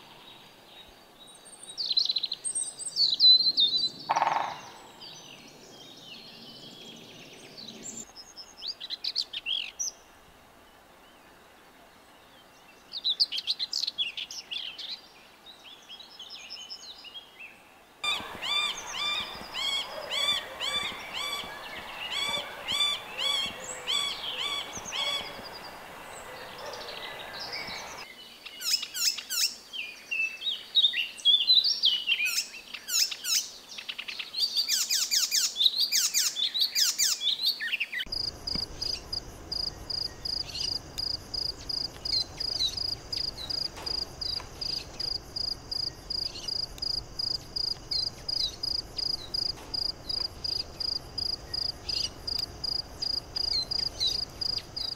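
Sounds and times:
songbird singing: 0:00.0 - 0:54.9
woodpecker nasal calls: 0:04.1 - 0:04.9, 0:18.0 - 0:28.0, 0:38.1 - 0:54.9
high insect trill: 0:18.0 - 0:28.0, 0:38.1 - 0:54.9
faint chirps: 0:18.0 - 0:29.5, 0:38.0 - 0:54.9.

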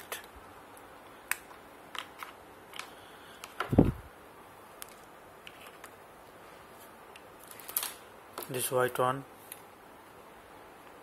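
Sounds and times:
plastic connector clicks and rattles: 0:01.3 - 0:03.7.

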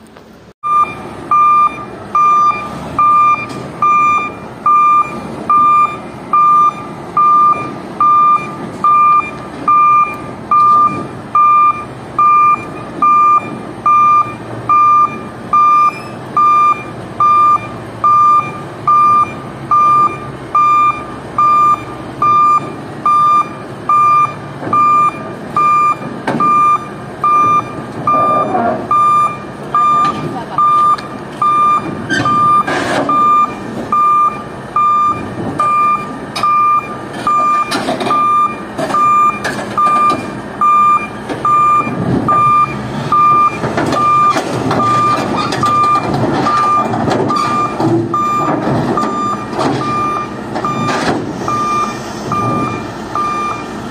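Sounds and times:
diesel engine running: 0:00.0 - 0:53.9
reverse alarm beeping: 0:00.6 - 0:53.7
tracks clanking on metal ramp: 0:35.2 - 0:40.4, 0:41.2 - 0:51.5.

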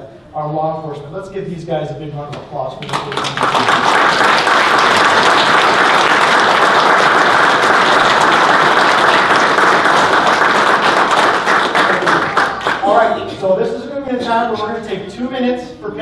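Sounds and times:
crowd applauding: 0:02.8 - 0:13.0.

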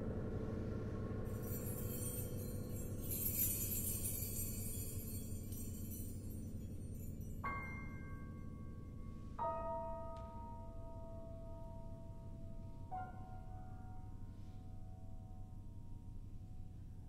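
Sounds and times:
soft bell-like struck notes: 0:01.3 - 0:14.6.

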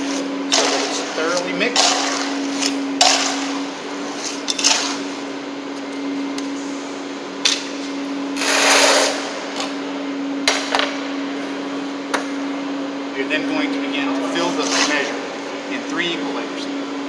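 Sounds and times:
scoop scraping wet concrete: 0:00.0 - 0:05.3, 0:08.4 - 0:09.2, 0:14.2 - 0:15.2.

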